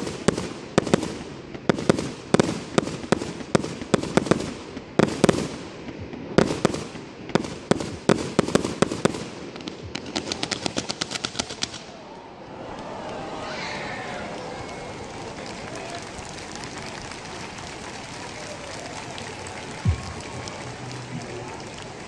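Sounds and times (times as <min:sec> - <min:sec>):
firework bangs: 0:00.0 - 0:22.0
firework light pops: 0:14.0 - 0:22.0.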